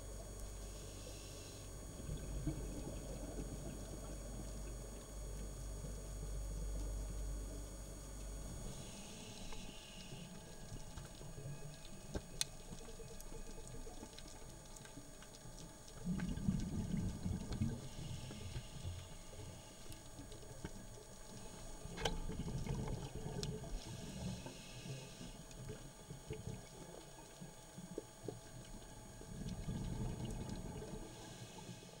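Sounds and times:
regulator inhale hiss: 0:00.6 - 0:01.8, 0:08.7 - 0:10.5, 0:17.8 - 0:19.9, 0:23.7 - 0:25.4, 0:31.0 - 0:32.0
bubbling exhaust: 0:01.7 - 0:06.4, 0:13.0 - 0:19.6, 0:29.1 - 0:31.2.

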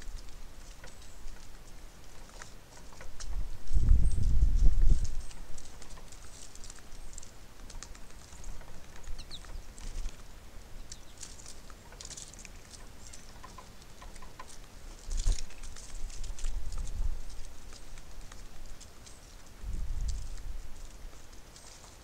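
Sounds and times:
faint high bird chirps: 0:09.1 - 0:09.6.

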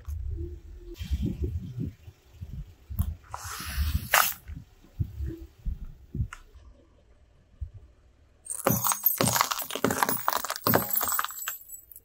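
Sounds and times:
low rumble: 0:00.0 - 0:08.2.

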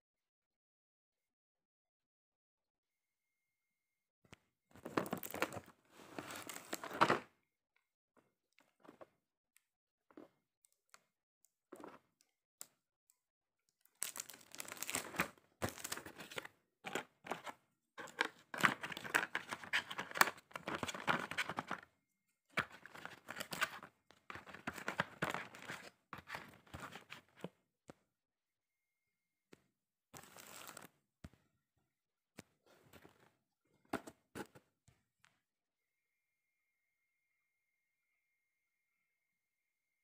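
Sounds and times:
plastic packaging crinkling and tearing: 0:13.9 - 0:16.4.

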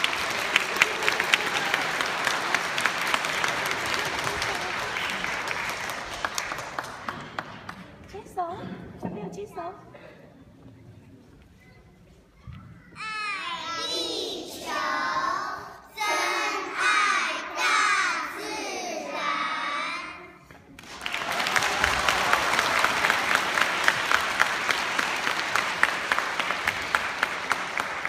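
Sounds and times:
audience applauding: 0:00.0 - 0:08.1, 0:20.7 - 0:28.0
children singing: 0:13.3 - 0:20.3.

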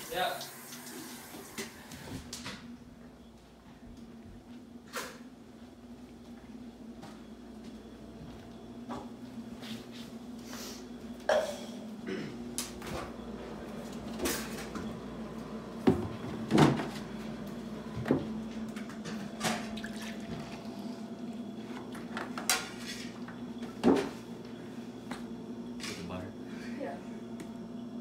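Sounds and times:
steady low hum: 0:02.2 - 0:28.0.

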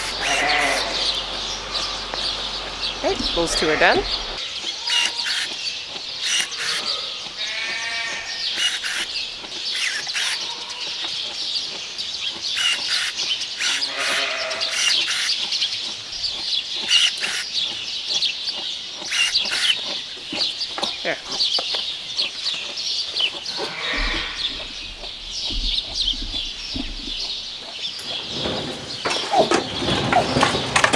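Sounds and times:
sheep bleating: 0:00.0 - 0:01.2, 0:03.1 - 0:05.3, 0:06.6 - 0:08.5, 0:13.7 - 0:14.8, 0:23.5 - 0:24.8
constant high chirping: 0:00.0 - 0:30.8
scattered clicks: 0:04.9 - 0:07.4, 0:14.7 - 0:18.3.

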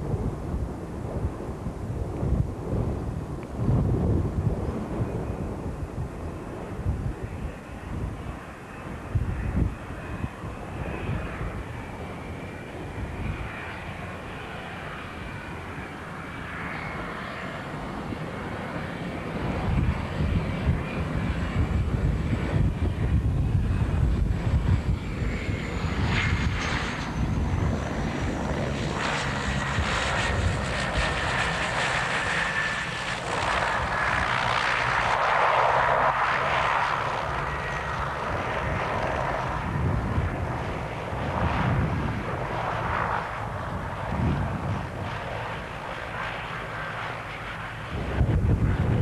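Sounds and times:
turboprop engines running: 0:00.0 - 0:49.0.

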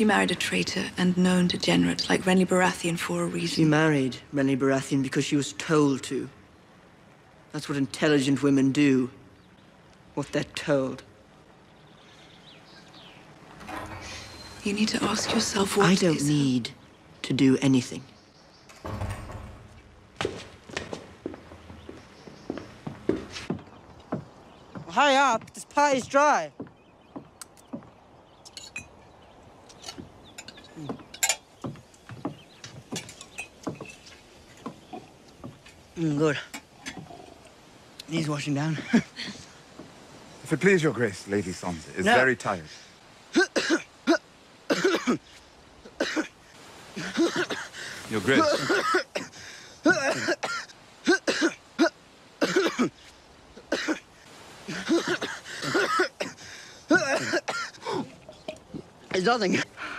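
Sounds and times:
goblets and tableware clinking: 0:28.5 - 0:29.0, 0:29.7 - 0:31.5, 0:32.9 - 0:35.2
man coughing: 0:43.4 - 0:45.2, 0:46.0 - 0:46.3, 0:47.0 - 0:47.7, 0:48.4 - 0:53.0, 0:53.7 - 0:54.0, 0:54.7 - 0:58.1
man clearing throat: 0:48.4 - 0:52.9, 0:54.7 - 0:58.1.

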